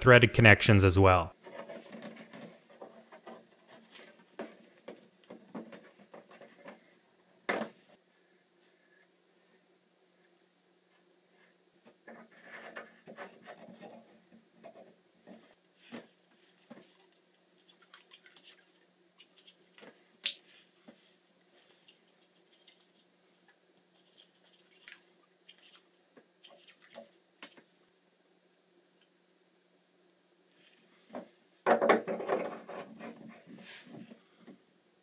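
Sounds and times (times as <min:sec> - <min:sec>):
tape rustling and crinkling: 0:14.7 - 0:20.4, 0:21.5 - 0:27.7.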